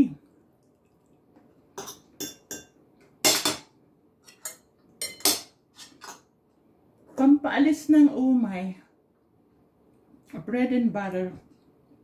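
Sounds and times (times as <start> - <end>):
cutlery scraping on a plate: 4.2 - 6.3.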